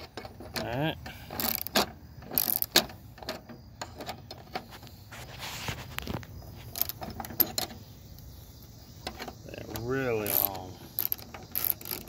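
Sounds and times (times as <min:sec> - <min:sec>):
hand ratchet clicking: 0:00.0 - 0:03.4, 0:09.1 - 0:12.0
bolt scraping metal: 0:00.0 - 0:08.3, 0:08.9 - 0:12.0.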